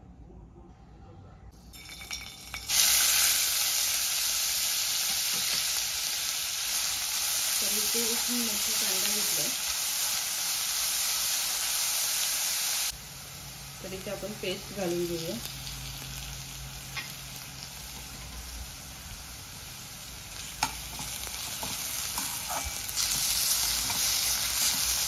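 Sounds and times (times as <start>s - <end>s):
onions sizzling in hot oil: 1.7s - 25.0s
metal spoon stirring: 20.6s - 25.0s.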